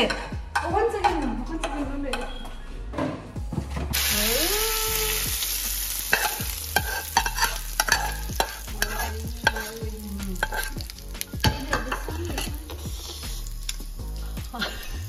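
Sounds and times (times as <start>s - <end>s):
oil sizzling in pan: 4.0s - 14.9s.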